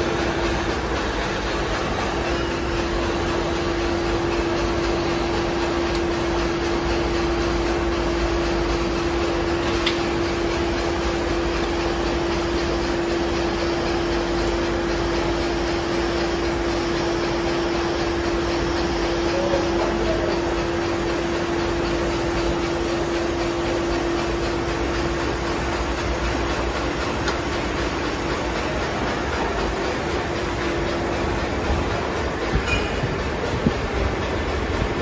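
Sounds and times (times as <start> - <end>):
milling machine whirring: 0.0 - 35.0
mid-pitched hum: 19.2 - 35.0.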